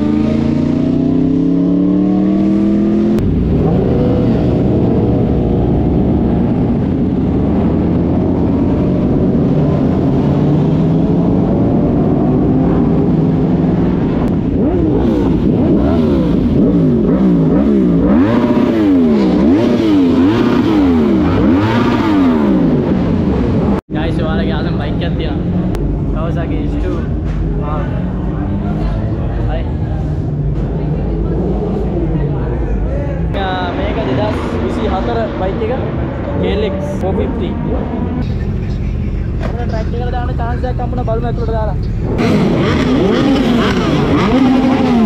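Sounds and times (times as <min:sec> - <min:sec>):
motorcycle engine accelerating: 0:00.0 - 0:23.8, 0:33.2 - 0:45.0
motorcycle engine revving: 0:00.0 - 0:23.8, 0:33.2 - 0:45.0.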